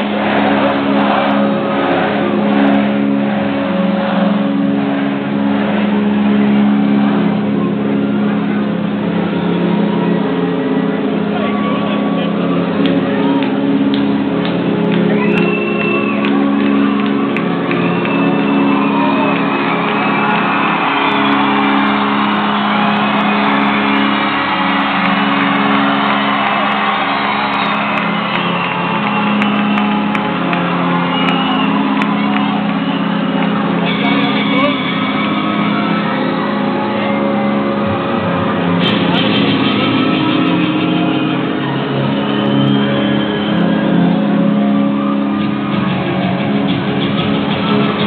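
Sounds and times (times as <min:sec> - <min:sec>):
crowd cheering: 0:00.0 - 0:48.0
low drone chord through speakers: 0:00.0 - 0:48.0.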